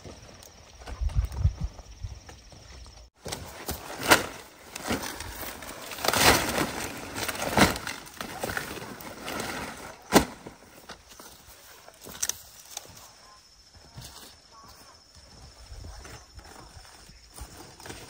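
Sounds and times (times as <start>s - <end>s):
cabbage leaves snapping and crunching: 3.2s - 11.2s, 11.8s - 12.9s.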